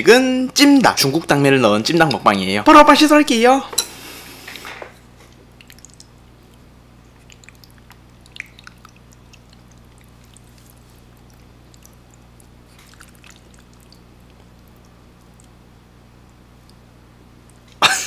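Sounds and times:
low electrical hum: 0.0s - 18.0s
wet eating mouth sounds: 5.3s - 15.6s.

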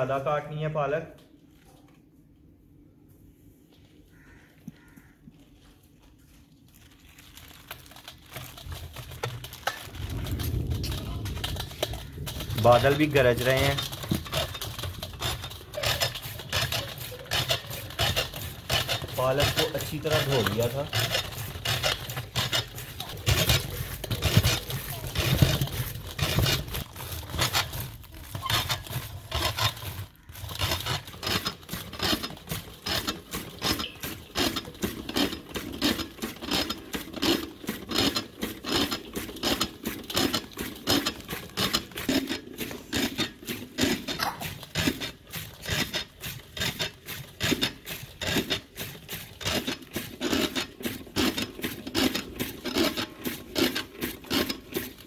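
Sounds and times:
cutter blades chopping spinach: 7.4s - 55.0s.

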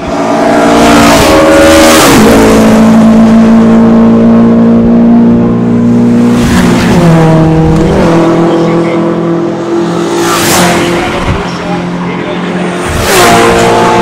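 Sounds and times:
race car engine passing: 0.0s - 14.0s
second car engine passing: 5.9s - 14.0s.

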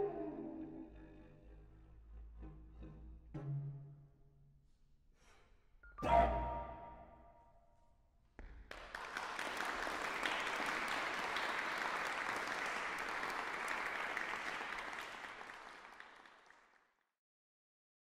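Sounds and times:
audience applause: 8.7s - 16.9s.

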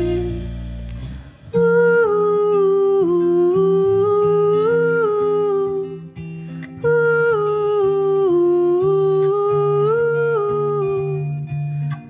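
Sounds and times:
slow gliding hum-like melody: 0.0s - 0.9s
live band music: 0.0s - 1.6s
steady bass note: 0.0s - 1.7s.

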